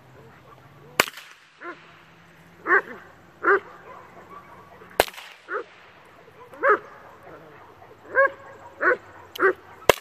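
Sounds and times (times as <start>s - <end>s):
sharp cracks: 0.9s - 2.0s, 4.9s - 6.1s, 9.3s - 10.0s
dog barking: 2.6s - 10.0s.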